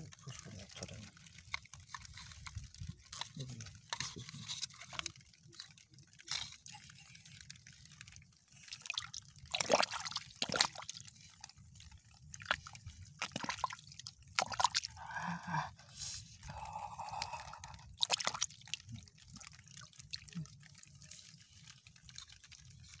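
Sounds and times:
muddy water splashing: 0.0 - 23.0.

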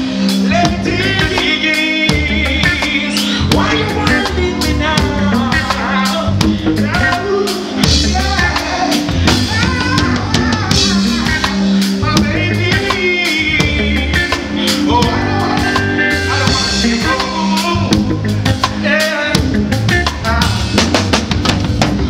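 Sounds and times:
person singing: 0.0 - 20.9
drum kit: 0.0 - 22.0
heavy bass: 0.0 - 22.0
reggae band playing: 0.0 - 22.0.

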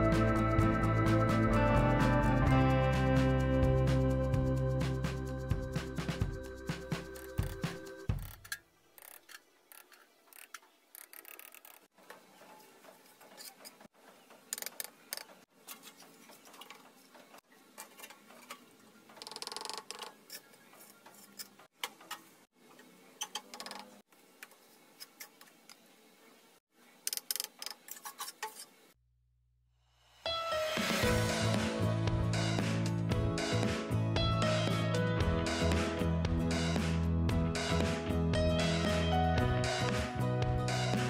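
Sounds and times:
background music: 0.0 - 8.2, 30.2 - 41.0
trowel scraping mortar: 20.0 - 21.7.

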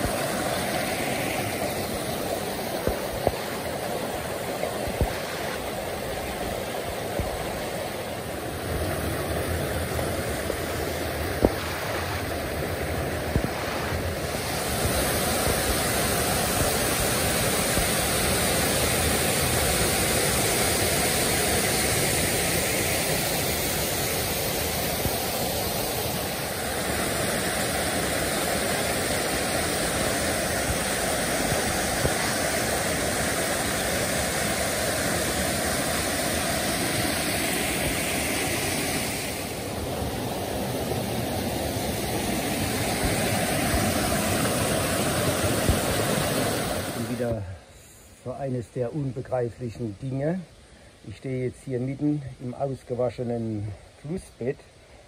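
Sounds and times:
stream rushing over rocks: 0.0 - 49.9.

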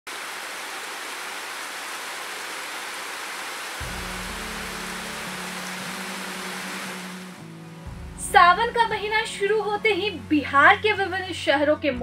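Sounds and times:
steady rain falling: 0.1 - 7.5
low background music: 3.8 - 12.0.

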